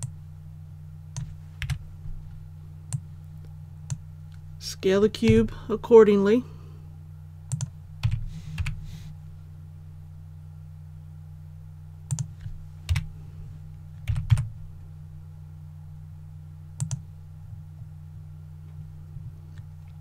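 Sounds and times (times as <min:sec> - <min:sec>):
steady low hum: 0:00.0 - 0:20.0
keyboard keystrokes: 0:07.5 - 0:08.8, 0:12.1 - 0:13.1, 0:16.8 - 0:17.0.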